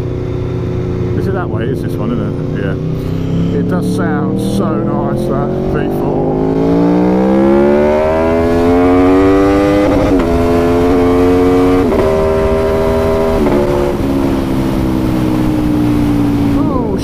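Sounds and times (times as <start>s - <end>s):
motorcycle engine accelerating: 0.0s - 17.0s
wind and road noise: 0.0s - 17.0s.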